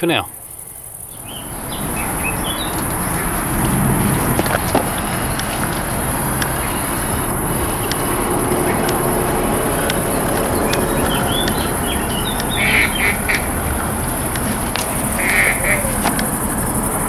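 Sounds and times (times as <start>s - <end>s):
steady high hiss: 0.0s - 17.0s
low rumble: 0.5s - 17.0s
faint clicks: 7.5s - 12.6s
short bird calls: 8.6s - 13.8s, 14.9s - 16.1s.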